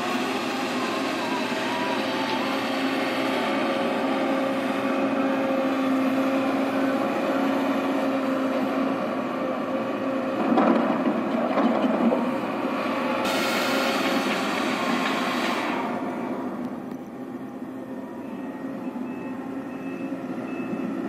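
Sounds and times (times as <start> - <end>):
excavator diesel engine running: 0.0 - 21.0.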